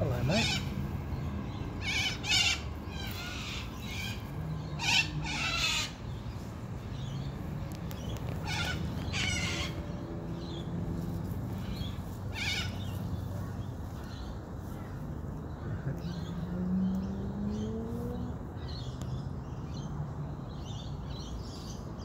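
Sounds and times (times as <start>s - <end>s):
cockatoos squawking: 0.1s - 0.9s, 1.7s - 6.2s, 8.1s - 10.1s, 11.5s - 14.1s.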